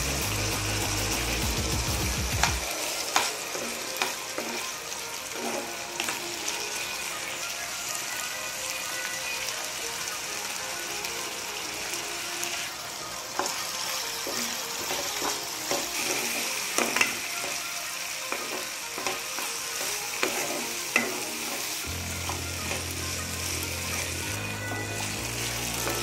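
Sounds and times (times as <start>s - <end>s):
food sizzling in oil: 0.0s - 26.0s
spoon scraping a pan: 2.4s - 6.2s, 13.4s - 22.9s.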